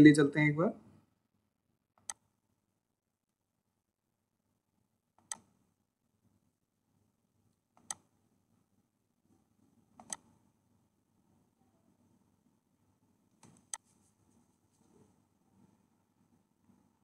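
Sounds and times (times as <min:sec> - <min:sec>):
computer mouse clicks: 0:02.0 - 0:02.3, 0:05.2 - 0:05.5, 0:07.8 - 0:08.1, 0:10.0 - 0:10.3, 0:13.4 - 0:13.9.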